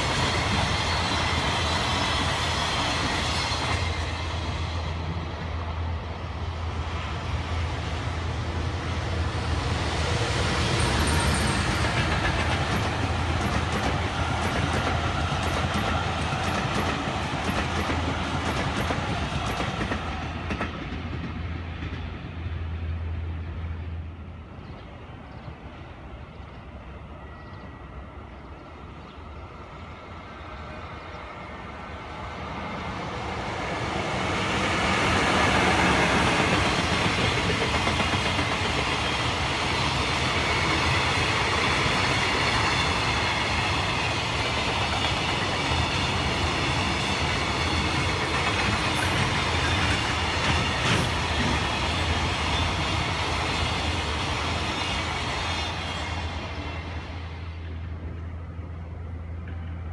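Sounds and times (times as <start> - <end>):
train wheels clattering over rail joints: 11.0 - 22.2, 35.4 - 54.4.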